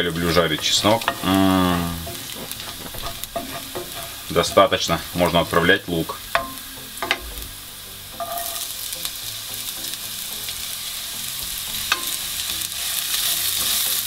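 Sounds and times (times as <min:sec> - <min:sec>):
wooden spatula stirring pan: 0:00.0 - 0:07.6
onion sizzling in hot oil: 0:00.0 - 0:14.0
spatula tapping pan: 0:00.1 - 0:07.4, 0:08.2 - 0:08.8, 0:11.8 - 0:13.8.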